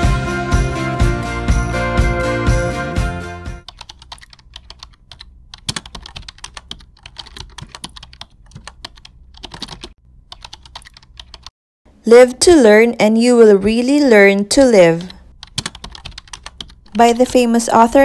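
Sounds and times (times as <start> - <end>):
background music: 0.0 - 3.7
keyboard typing clicks: 3.7 - 11.5, 15.0 - 17.4.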